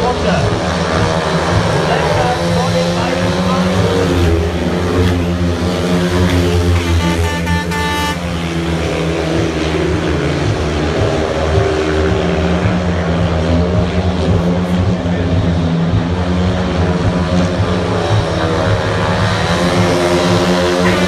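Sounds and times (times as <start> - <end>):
racing motorcycle engines: 0.0 - 21.0
horn sounding: 6.0 - 9.4, 20.3 - 21.0.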